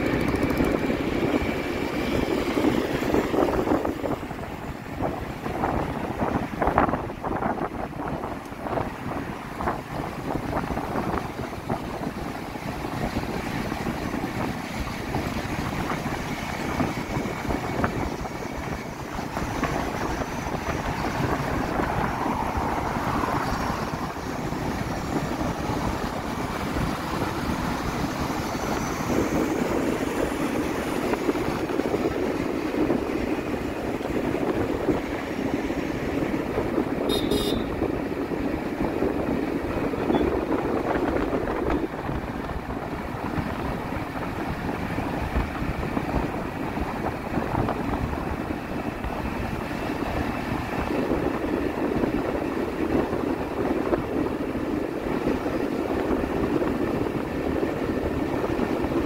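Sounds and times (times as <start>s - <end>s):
vehicle road noise: 0.0s - 59.0s
wind on microphone: 0.0s - 59.0s.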